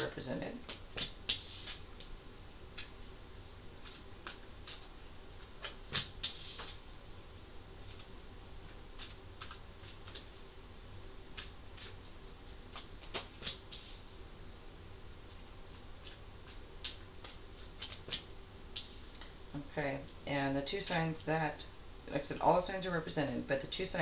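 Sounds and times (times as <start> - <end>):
cards snapping and sliding: 12.7 - 13.9.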